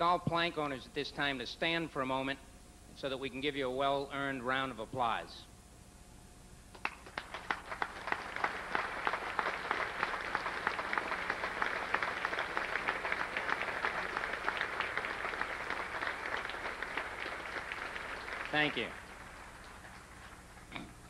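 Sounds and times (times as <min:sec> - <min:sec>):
audience applauding: 0:06.7 - 0:20.7.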